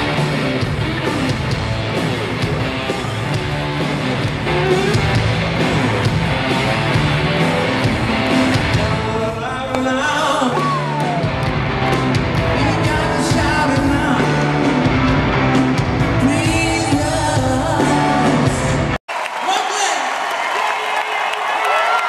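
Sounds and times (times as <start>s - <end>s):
rock band playing live: 0.0s - 19.0s
person singing: 8.6s - 11.3s, 12.5s - 14.5s, 16.1s - 18.8s.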